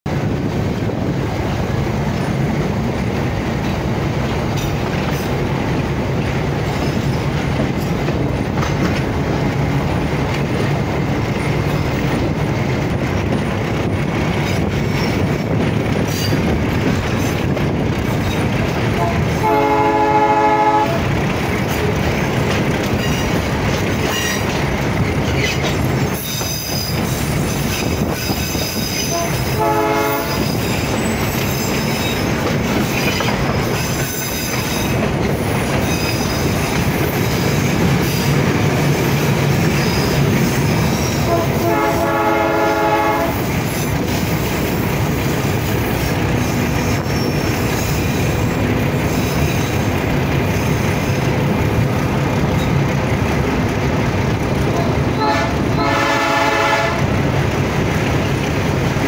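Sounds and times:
train rumbling and rattling on rails: 0.0 - 59.0
locomotive horn: 19.0 - 21.2, 29.0 - 30.6, 41.0 - 43.6, 55.0 - 57.2
wheels squealing: 43.4 - 51.4.

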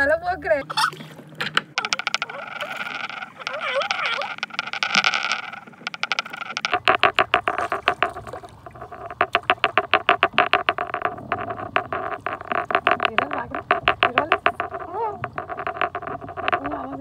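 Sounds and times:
water splashing: 0.0 - 17.0
fast sharp clicks: 1.6 - 17.0.

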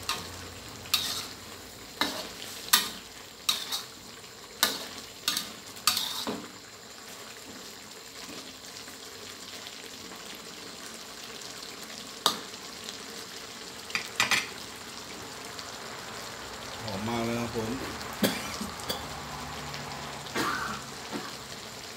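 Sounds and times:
spatula scraping a wok: 0.0 - 6.6
curry sizzling in a wok: 0.0 - 21.9.

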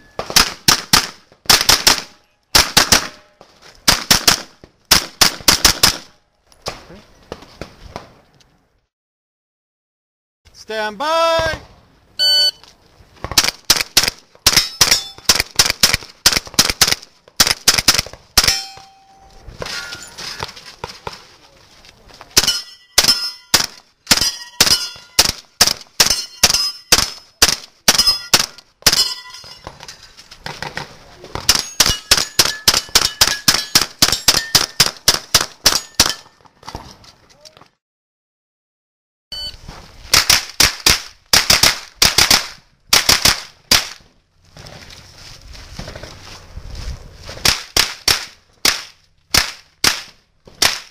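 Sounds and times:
gunshots: 0.2 - 3.3, 3.9 - 6.1, 13.2 - 18.9, 22.4 - 29.1, 40.1 - 44.0, 47.4 - 50.9
steel targets clanging: 14.5 - 15.3, 18.4 - 20.6, 22.4 - 23.6, 24.2 - 25.2, 26.0 - 27.0, 27.9 - 30.2, 31.5 - 34.8.

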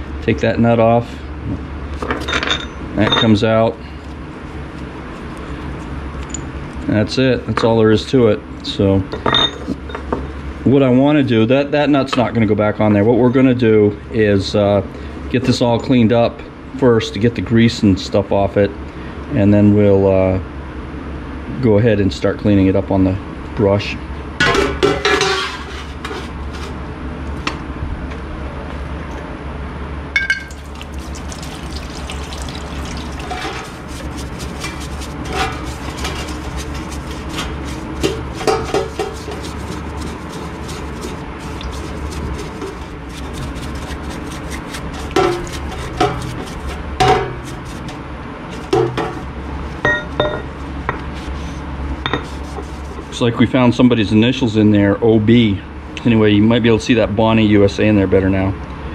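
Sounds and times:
brush scrubbing and splashing: 30.5 - 49.8, 50.5 - 53.3.

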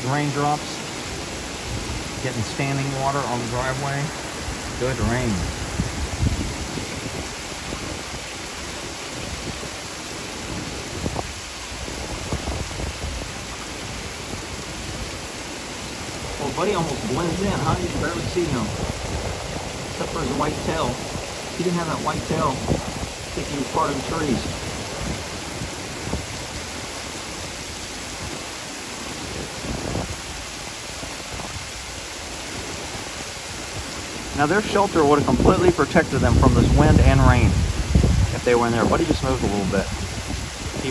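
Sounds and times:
heavy rain pouring: 0.0 - 40.9
wind buffeting microphone: 0.0 - 40.9
sharp raindrop taps: 16.2 - 26.8.

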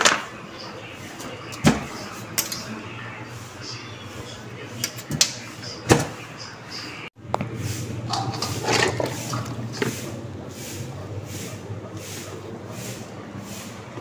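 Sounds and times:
sloshing and rustling of scraps: 8.0 - 10.2.

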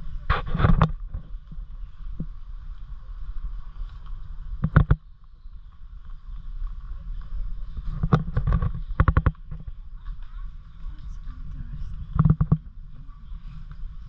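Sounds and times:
wind rumble on microphone: 0.0 - 14.0
sharp knocks and crackles: 0.2 - 2.9, 3.6 - 14.0.

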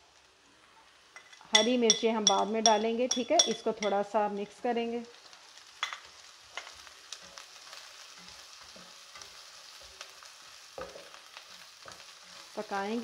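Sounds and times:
onions sizzling in hot oil: 0.0 - 13.0
spatula scraping a pan: 6.0 - 12.6.

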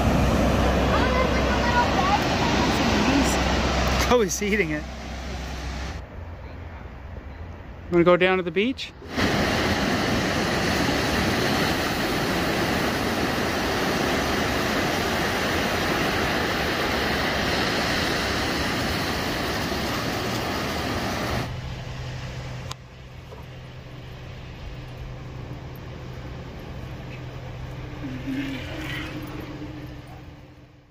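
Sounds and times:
waves washing on sand: 0.0 - 6.0, 9.0 - 22.3
steady low hum: 20.0 - 30.9.

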